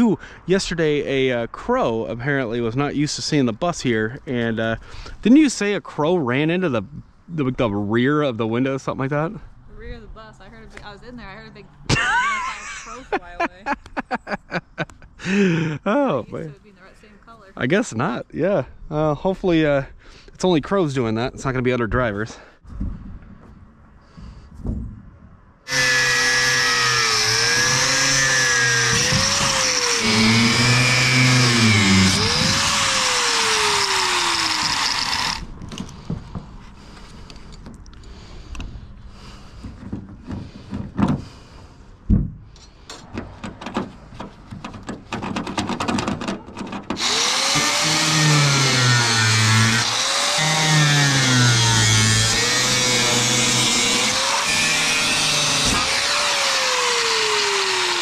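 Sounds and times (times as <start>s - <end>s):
angle grinder grinding metal: 25.7s - 35.5s, 46.9s - 58.0s
handling knocks and clicks: 42.1s - 47.0s.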